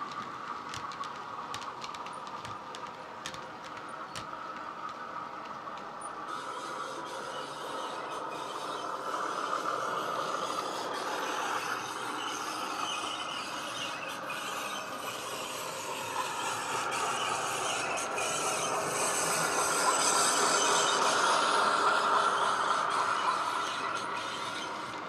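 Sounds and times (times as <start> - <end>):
model train running on track: 0.0 - 25.0.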